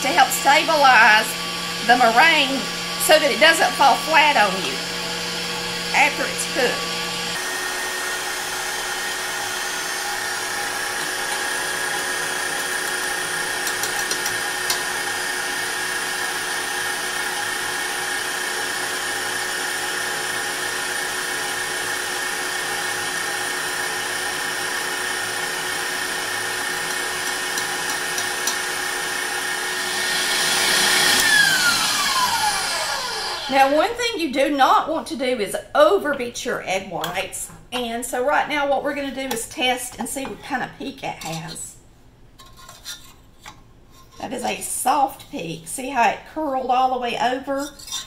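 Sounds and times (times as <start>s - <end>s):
stand mixer motor whine: 0.0s - 33.8s.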